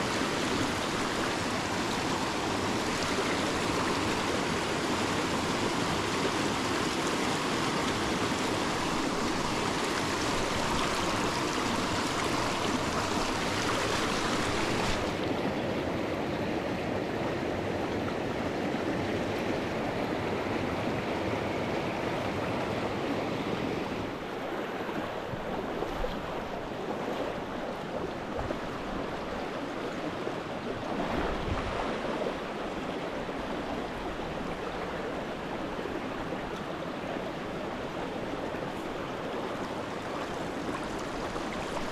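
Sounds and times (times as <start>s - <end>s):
stream rushing over rocks: 0.0s - 15.4s, 27.9s - 41.9s.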